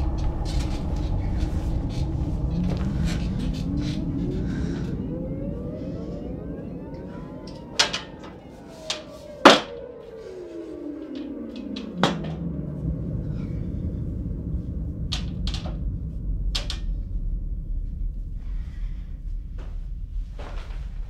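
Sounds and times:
low rumbling drone: 0.0s - 21.0s.

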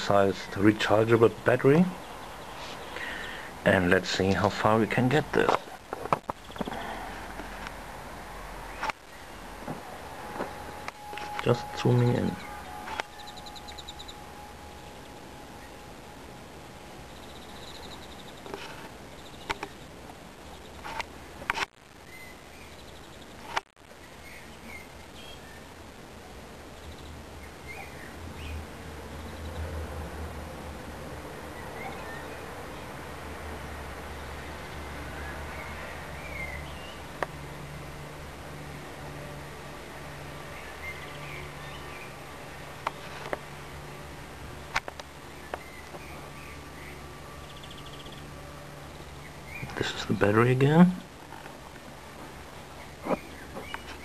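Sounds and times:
steady background hiss: 0.0s - 54.0s
steady low hum: 0.0s - 54.0s
faint high chirps: 9.1s - 18.5s.

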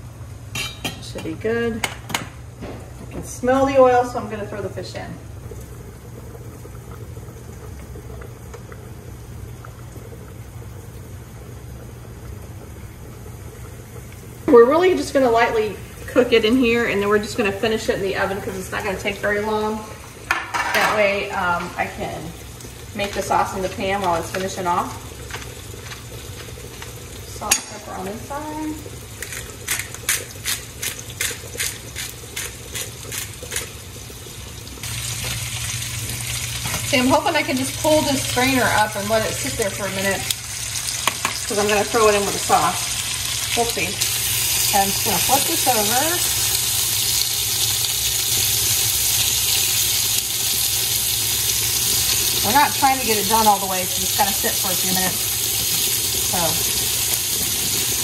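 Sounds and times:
pot of water boiling: 0.0s - 58.0s
fish frying in oil: 3.4s - 58.0s
pepper grinder crunching: 29.2s - 33.8s.

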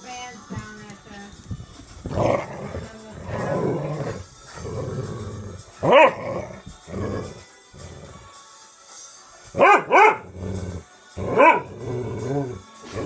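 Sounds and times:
dogs play-growling: 2.0s - 8.3s, 10.0s - 13.0s
dog barking: 5.8s - 6.4s, 9.6s - 10.4s, 11.2s - 11.8s.

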